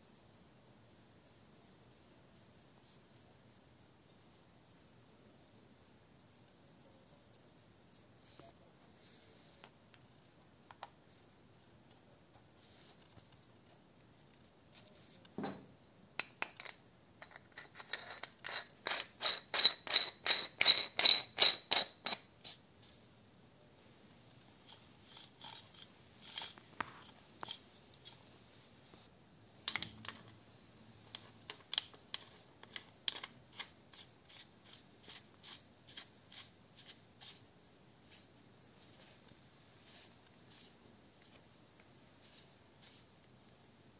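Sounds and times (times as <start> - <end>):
light clicks and scrapes: 16.6 - 19.1, 24.6 - 29.1, 31.0 - 43.6.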